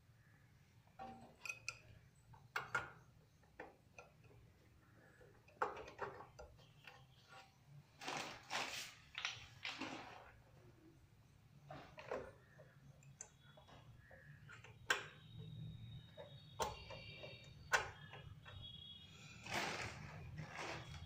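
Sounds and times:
scraping rustles: 19.4 - 21.0.

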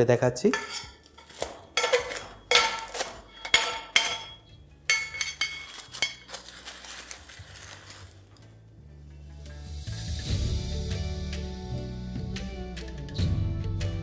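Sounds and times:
metal spoon clinking on copper pot: 0.5 - 6.5.

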